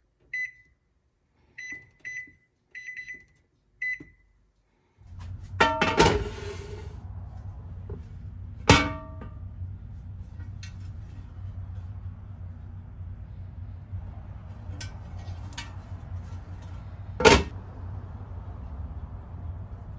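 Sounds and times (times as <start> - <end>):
electronic keypad beeps: 1.6 - 4.2
low hum: 5.0 - 19.9
metal griddle clanging: 5.5 - 6.9, 8.7 - 9.4, 14.6 - 17.5.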